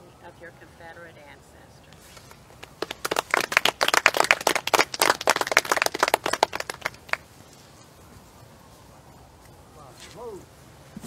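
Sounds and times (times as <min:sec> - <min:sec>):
crowd clapping: 0:02.6 - 0:07.3.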